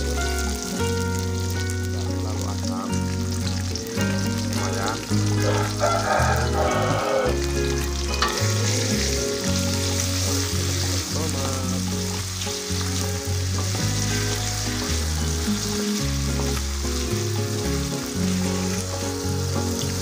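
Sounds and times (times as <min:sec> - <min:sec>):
low background music: 0:00.0 - 0:20.0
vegetables sizzling in hot oil: 0:00.0 - 0:20.0.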